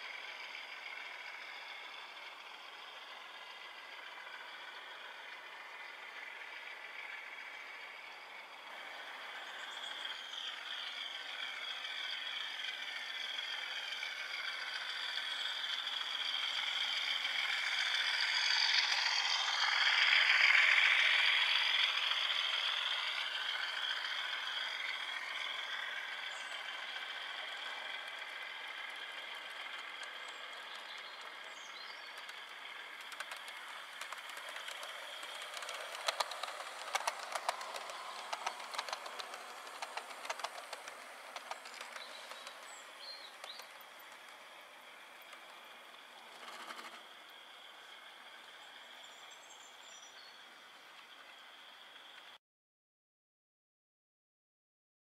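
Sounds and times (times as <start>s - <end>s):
model train motor whining: 0.0s - 52.4s
model train wheels on track: 0.0s - 52.4s
rapid clicking of wheels on rails: 0.0s - 52.4s.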